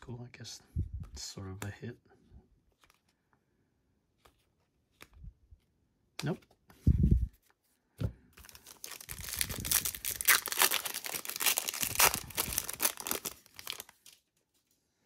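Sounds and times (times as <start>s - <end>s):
foil wrapper tearing: 8.4s - 14.0s.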